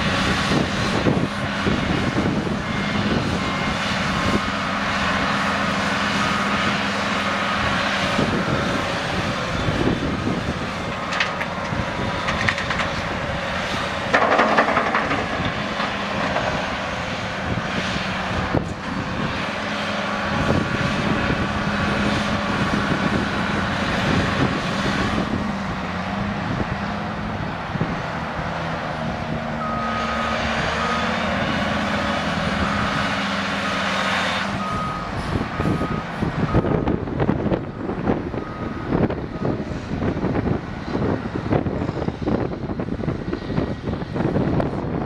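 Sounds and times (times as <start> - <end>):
excavator diesel engine working: 0.0 - 45.0
reversing alarm beeping: 29.6 - 31.6, 32.3 - 37.0, 37.7 - 39.6.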